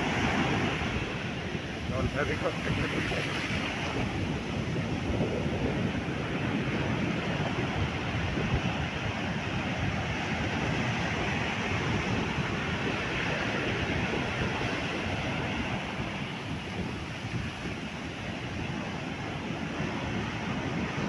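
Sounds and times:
strong wind on microphone: 0.0 - 21.0.

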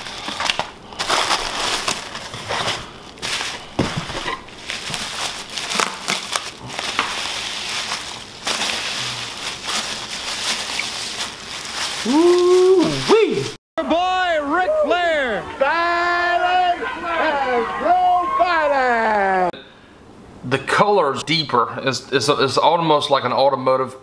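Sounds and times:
bubble wrap crinkling: 0.0 - 13.6.

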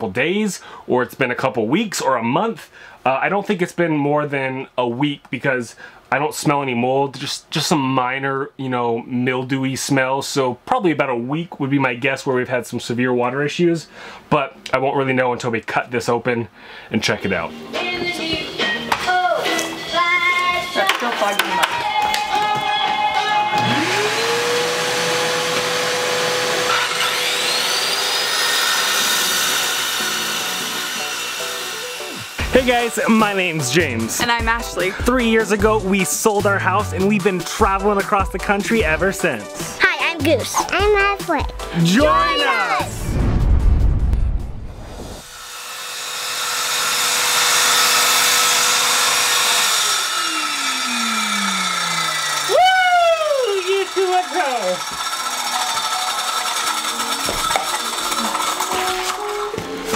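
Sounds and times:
shop vacuum motor humming: 20.8 - 35.4, 45.2 - 59.9
circular saw whining: 23.1 - 34.1, 45.2 - 59.9.

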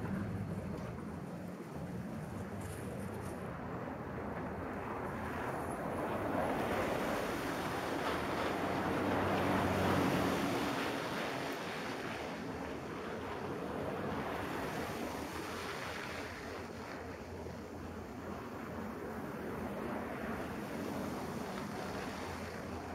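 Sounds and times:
low engine hum: 0.0 - 12.7.

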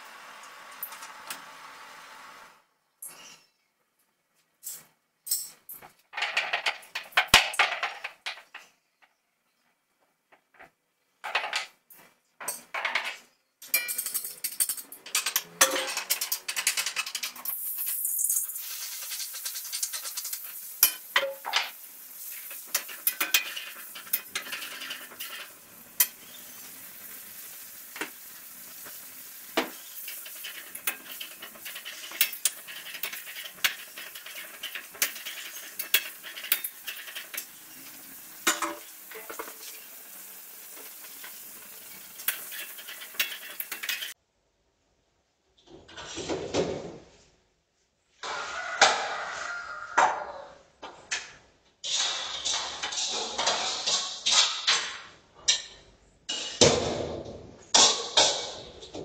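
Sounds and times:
food sizzling in hot oil: 17.3 - 44.2.

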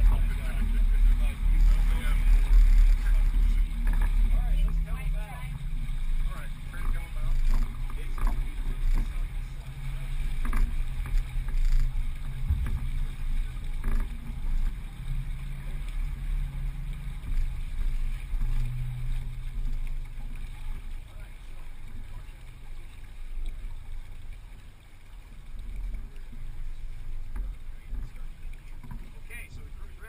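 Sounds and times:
low rumble aboard a sailboat: 0.0 - 30.0
faint knocks: 10.3 - 14.9.

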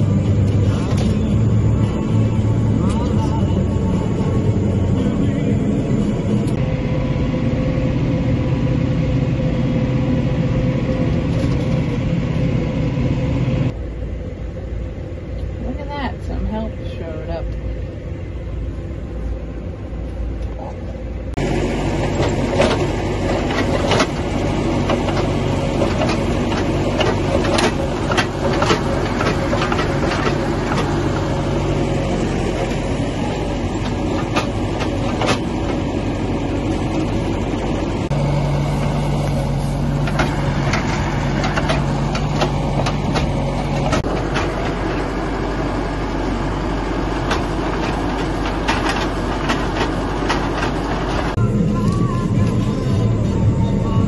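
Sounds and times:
tractor diesel engine running: 0.0 - 54.0
loader clanks and knocks: 21.4 - 53.2.

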